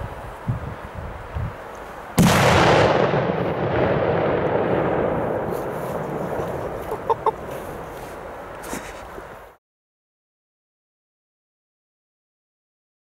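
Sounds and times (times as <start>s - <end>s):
firecracker bang: 2.2s - 8.2s.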